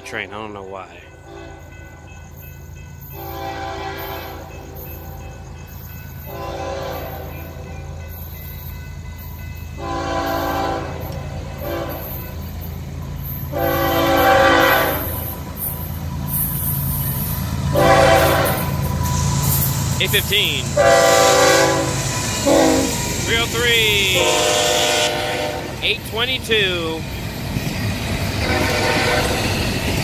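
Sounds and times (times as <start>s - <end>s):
locomotive rumble: 0.0s - 30.0s
train air horn blasts: 3.2s - 4.5s, 6.3s - 7.5s, 9.8s - 12.3s, 13.5s - 15.4s, 17.7s - 18.9s, 20.2s - 25.9s, 28.4s - 29.6s.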